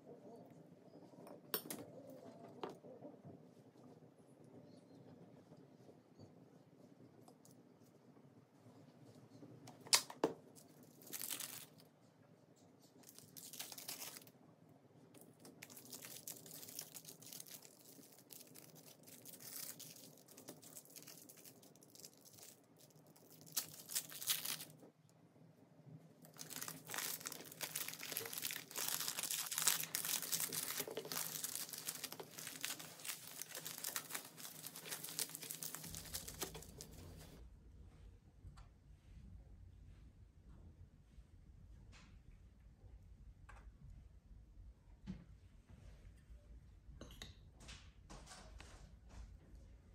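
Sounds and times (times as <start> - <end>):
plastic wrap crinkling and tearing: 10.6 - 11.8, 13.0 - 14.3, 15.5 - 24.8, 26.3 - 37.4.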